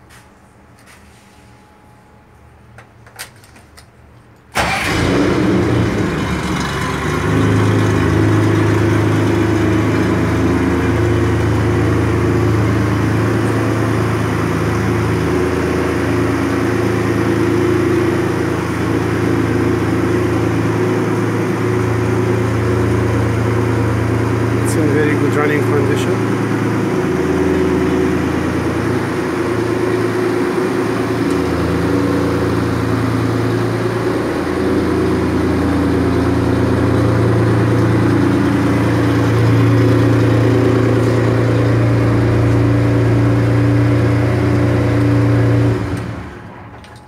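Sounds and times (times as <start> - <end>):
engine starting and idling: 4.5 - 11.8.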